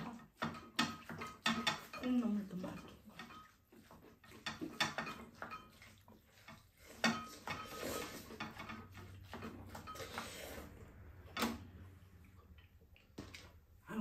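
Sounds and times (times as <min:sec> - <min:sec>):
utensils clinking against bowls: 0:00.0 - 0:10.7.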